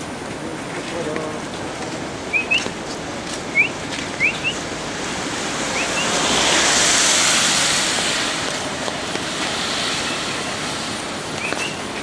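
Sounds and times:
falling water rushing: 0.0 - 12.0
bird chirps: 2.3 - 2.7, 3.5 - 4.6, 5.8 - 6.2, 11.4 - 11.8.

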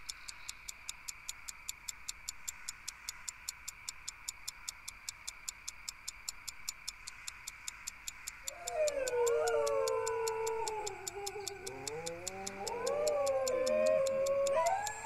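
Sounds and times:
clock ticking fast: 0.0 - 15.0
faint steady hiss: 0.0 - 15.0
wavering animal howl: 8.4 - 15.0.

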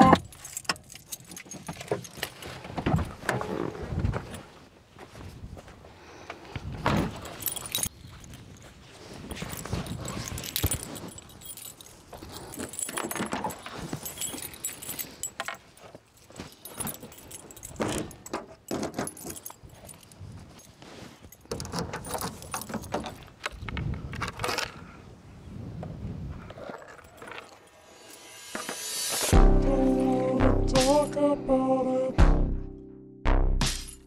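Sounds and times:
jangling and clinking gear: 0.0 - 3.2, 7.0 - 24.9, 26.5 - 29.4.

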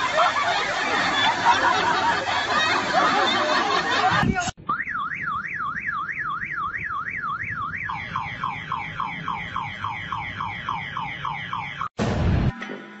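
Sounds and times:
man imitating car alarm: 4.6 - 11.9.

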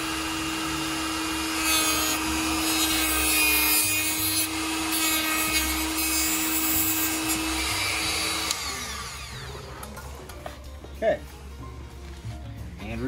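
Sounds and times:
rotary tool whining: 0.0 - 9.8.

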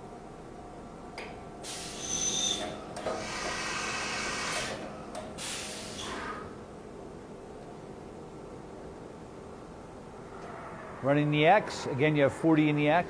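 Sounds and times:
machine humming: 0.0 - 13.0
pneumatic air hiss: 1.6 - 6.5.

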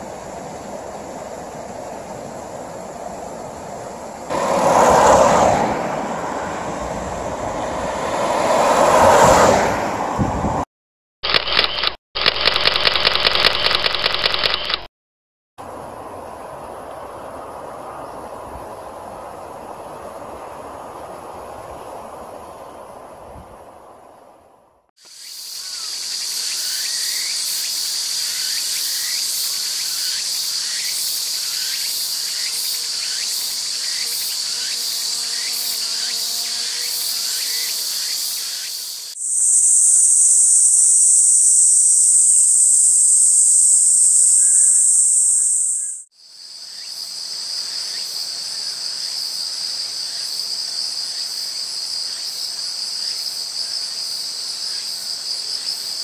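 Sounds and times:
high-pitched insect chorus: 25.0 - 56.0.

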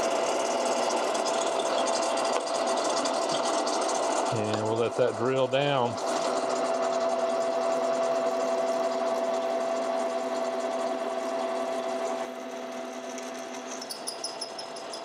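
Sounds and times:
drill press humming: 0.0 - 15.0
rapid high-pitched ticking: 13.7 - 15.0.

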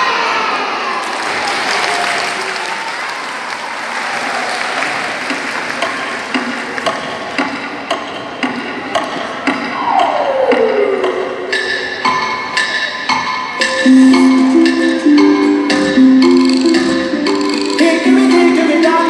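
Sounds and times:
audience applauding: 1.0 - 7.2
wood-block tick-tock: 5.3 - 17.8.

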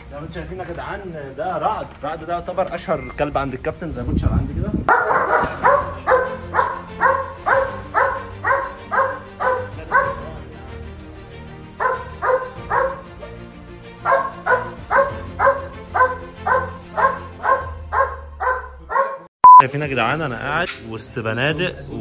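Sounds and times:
dog barking: 4.9 - 10.4, 11.8 - 13.1, 14.0 - 19.3.

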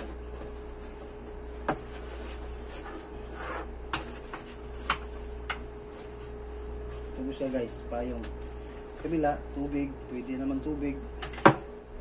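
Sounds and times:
steady low hum: 0.0 - 12.0
fabric rustling: 4.5 - 7.6.

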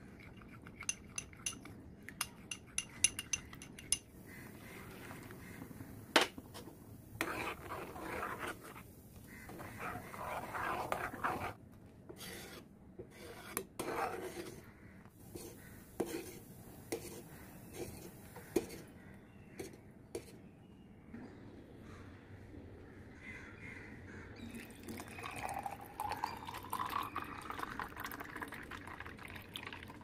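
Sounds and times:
spoon scraping saucepan: 0.2 - 5.7, 6.4 - 11.6, 12.2 - 14.7, 15.3 - 19.0.

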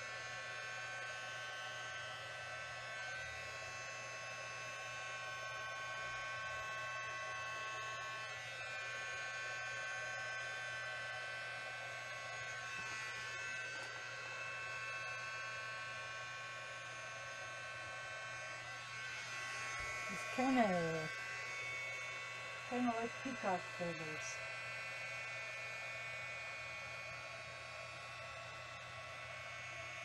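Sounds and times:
electric blower whining: 0.0 - 30.0.

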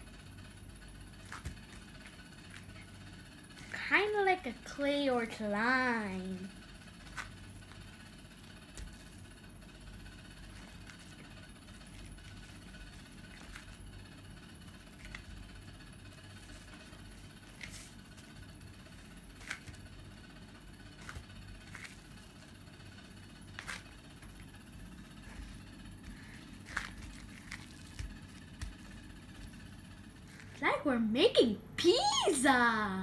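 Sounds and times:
low steady hum: 0.0 - 33.0
hands kneading sticky dough: 6.6 - 30.6.

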